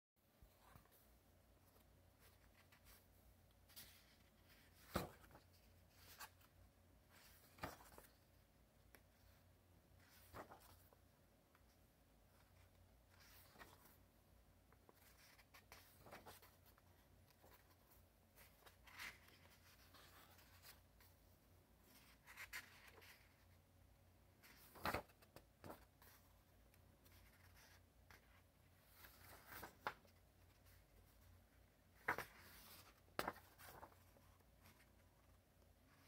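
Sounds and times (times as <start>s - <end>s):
paper pages rustling and flicking: 1.6s - 6.5s, 7.2s - 8.3s, 10.0s - 11.0s, 12.3s - 14.0s, 14.7s - 21.1s, 24.4s - 26.3s, 28.8s - 31.2s, 31.9s - 36.0s.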